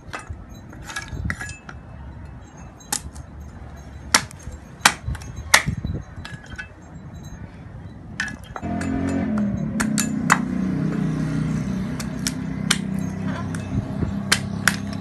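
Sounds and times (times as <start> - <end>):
machete chopping coconut shell: 11.9 - 15.0.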